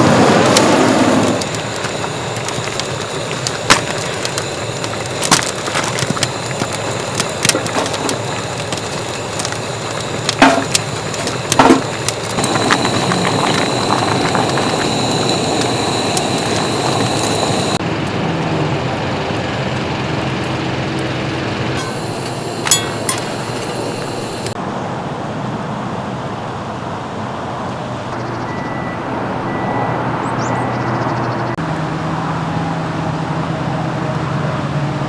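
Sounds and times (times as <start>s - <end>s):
steady rushing hiss: 0.0s - 17.8s, 21.6s - 24.7s
wood fire crackling and popping: 0.0s - 18.2s, 19.7s - 24.6s.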